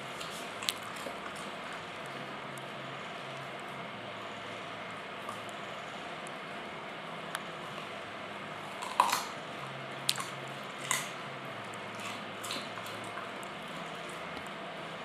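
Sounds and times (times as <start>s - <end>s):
dog crunching carrot: 0.1s - 2.7s, 8.6s - 14.6s.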